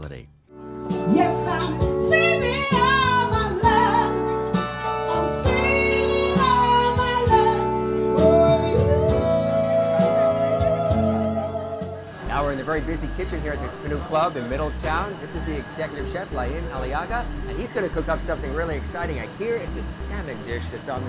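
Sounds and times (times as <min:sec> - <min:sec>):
synthesizer chords: 0:00.0 - 0:21.0
woman singing: 0:01.0 - 0:12.0.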